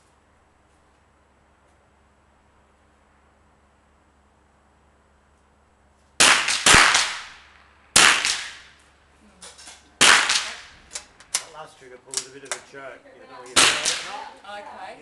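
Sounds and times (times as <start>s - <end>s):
rifle shots echoing: 6.2s - 8.8s, 10.0s - 10.9s, 13.6s - 14.2s.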